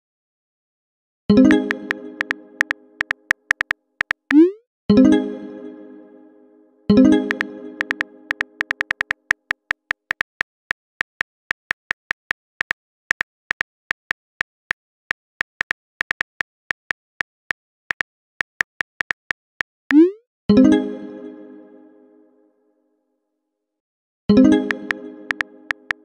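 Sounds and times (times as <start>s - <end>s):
phone keyboard typing clicks: 1.5s - 4.5s, 7.3s - 20.0s, 24.7s - 26.0s.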